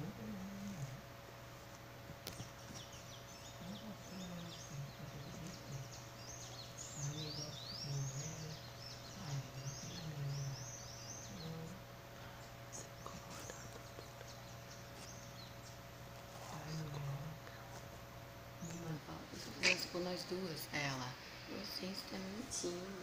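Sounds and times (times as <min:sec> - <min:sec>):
low electrical hum: 0:00.0 - 0:23.0
faint high chirping calls: 0:02.3 - 0:17.0.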